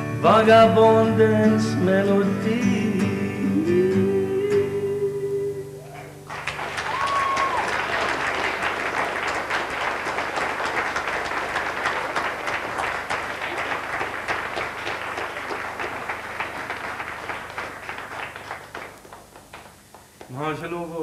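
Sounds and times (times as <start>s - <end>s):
audience applauding: 5.8s - 20.4s.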